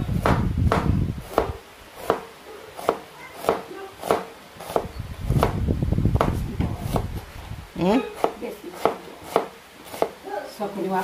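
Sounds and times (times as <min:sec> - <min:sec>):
knife striking cutting board: 0:00.2 - 0:05.6, 0:08.2 - 0:10.2.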